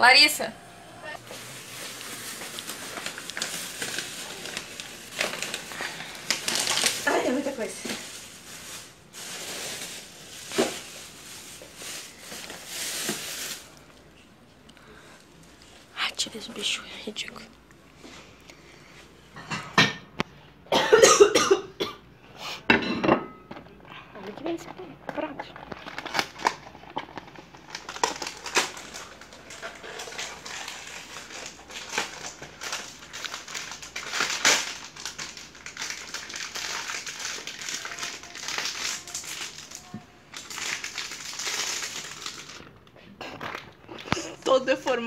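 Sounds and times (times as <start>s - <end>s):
gift wrapping paper crinkling: 1.2s - 14.3s, 24.2s - 45.0s
rustling handling noise: 1.2s - 16.8s.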